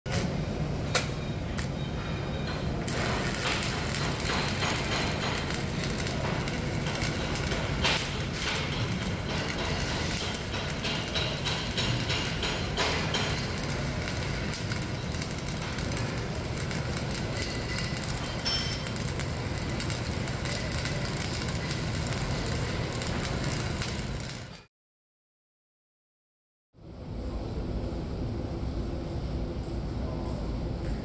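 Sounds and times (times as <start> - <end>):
welding arc crackling: 2.9 - 24.7.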